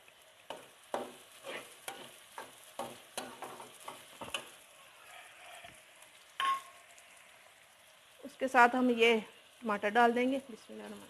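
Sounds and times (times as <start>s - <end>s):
faint frying sizzle: 0.0s - 11.0s
metal spatula scraping a pan: 1.0s - 5.7s.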